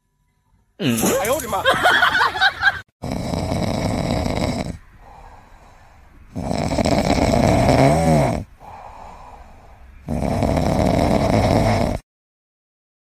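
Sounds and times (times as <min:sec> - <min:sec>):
kitten snoring: 0:03.0 - 0:05.2, 0:06.3 - 0:09.0, 0:10.0 - 0:12.0.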